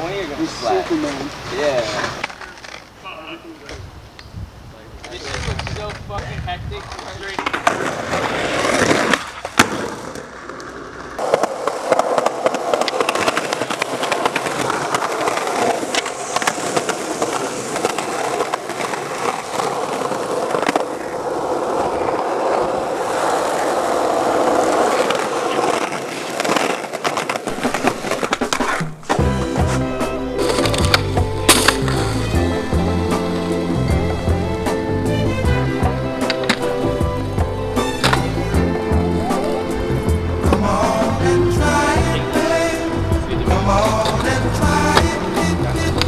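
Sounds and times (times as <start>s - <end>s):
skateboard wheels rolling on concrete: 0.0s - 46.0s
skateboard clacks popping and landing: 6.9s - 21.2s, 24.6s - 38.8s, 43.9s - 46.0s
music: 28.8s - 46.0s.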